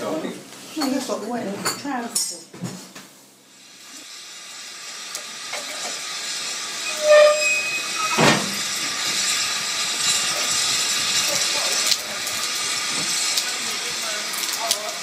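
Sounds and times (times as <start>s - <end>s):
steam hissing: 3.4s - 15.0s
steam whistle toot: 6.8s - 8.6s.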